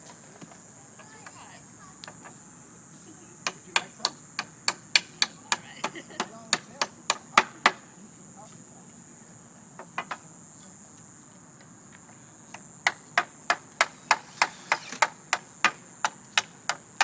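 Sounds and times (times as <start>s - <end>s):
high-pitched hiss: 0.0s - 17.0s
knocks on wooden pallets: 12.8s - 16.9s.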